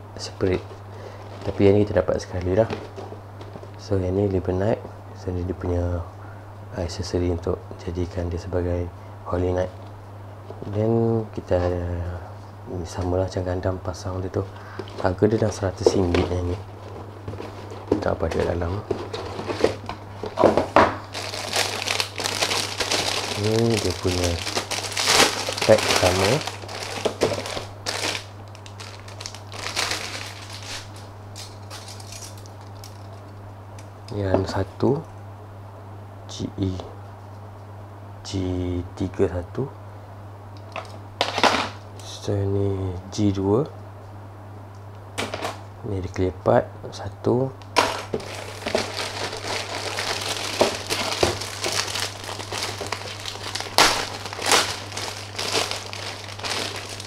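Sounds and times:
plastic bag crinkling: 14.6 - 33.3, 47.8 - 57.0.

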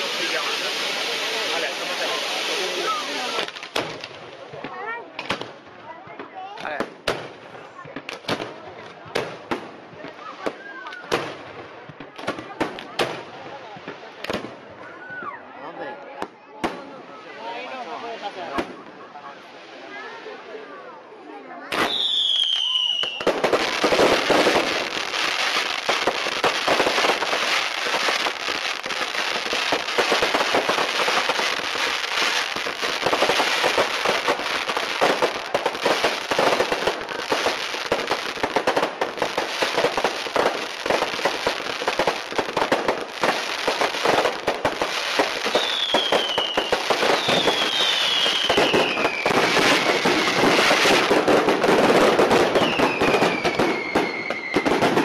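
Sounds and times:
fireworks crackling bangs: 0.0 - 15.3, 16.0 - 55.0
firework whistles falling in pitch: 21.7 - 23.3, 45.5 - 50.5, 52.6 - 54.8.

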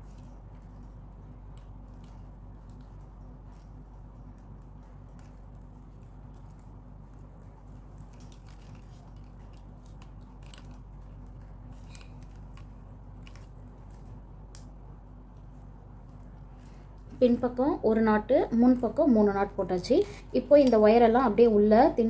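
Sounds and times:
plastic wire rubbing and clicking: 0.0 - 14.7
steady low hum: 0.0 - 22.0.

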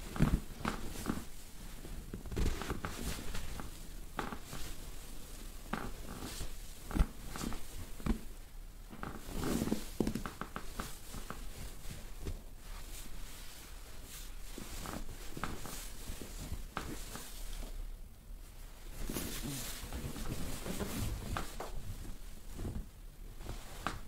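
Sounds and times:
hands rubbing on fabric: 18.8 - 24.0.

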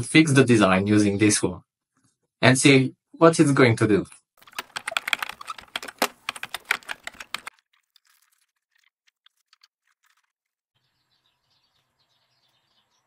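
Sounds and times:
typing on computer keyboard: 4.4 - 7.5.

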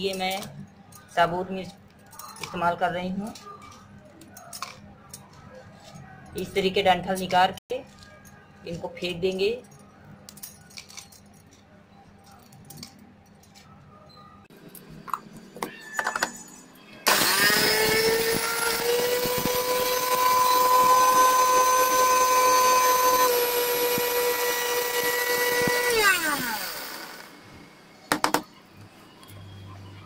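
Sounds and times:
mixer grinder motor whining: 17.0 - 27.7.

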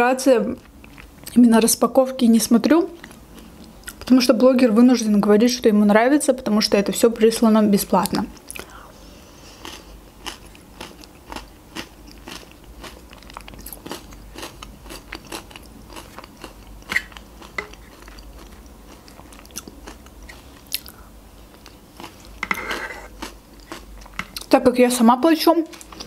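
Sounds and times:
spoon scraping plastic cup: 22.4 - 23.1.

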